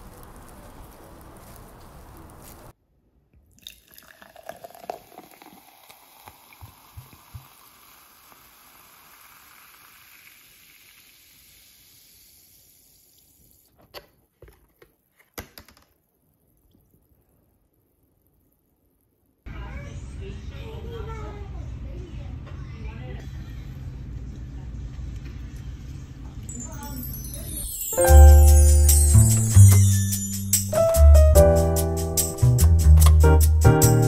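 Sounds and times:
sparkling water fizzing: 0.0s - 2.7s, 3.6s - 13.7s, 26.5s - 31.2s
outdoor background noise: 0.0s - 4.0s.

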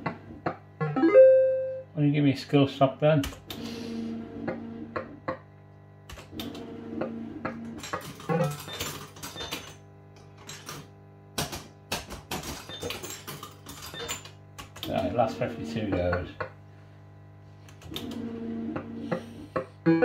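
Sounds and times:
fruit machine electronic tones: 0.8s - 1.9s.

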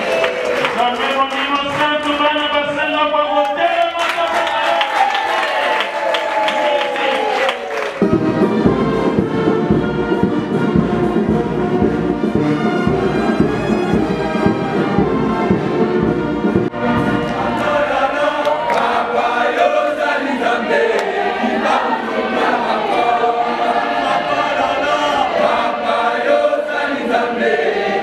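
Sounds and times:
instrumental accompaniment: 7.9s - 28.0s
choir singing a hymn: 8.1s - 28.0s.

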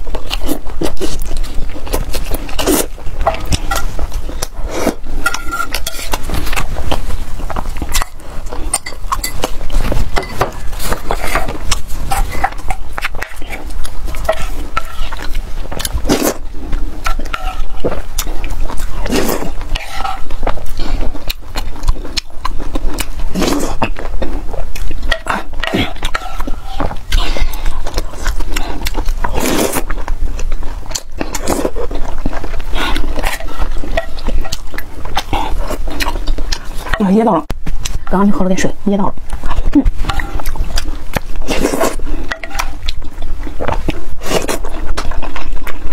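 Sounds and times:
eating sounds: 0.0s - 45.9s
wet chewing and slurping: 0.0s - 45.9s
wooden spoon stirring in pan: 3.2s - 4.2s, 5.1s - 15.5s, 17.0s - 18.1s, 19.7s - 20.4s, 42.2s - 42.8s.

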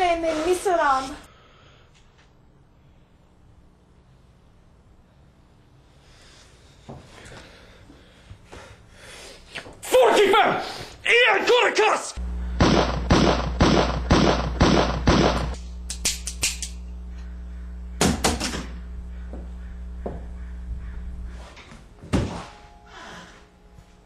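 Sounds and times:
steady low hum: 0.0s - 9.8s, 12.2s - 24.0s
pistol shots: 12.6s - 15.6s.

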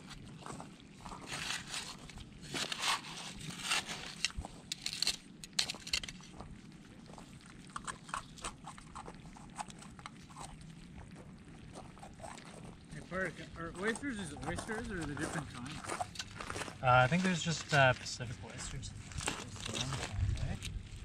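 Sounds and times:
hands scrabbling through gravel: 0.4s - 6.5s
trowel digging into gravel: 1.2s - 6.2s.

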